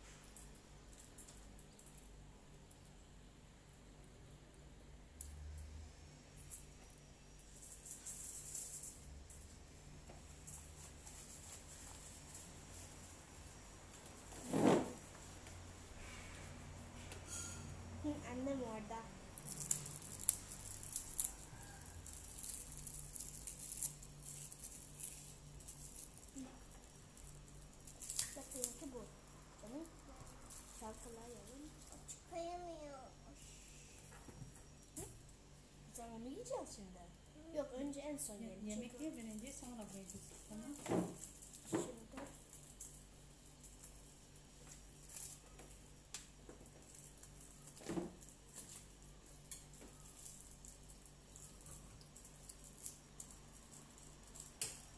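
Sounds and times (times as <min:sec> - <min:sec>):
crinkly rustles: 0:07.5 - 0:09.5, 0:10.1 - 0:13.3, 0:18.2 - 0:32.5, 0:37.6 - 0:54.9.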